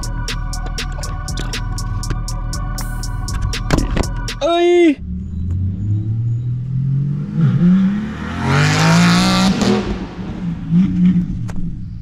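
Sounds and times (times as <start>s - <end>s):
car engine revving: 5.0s - 12.0s.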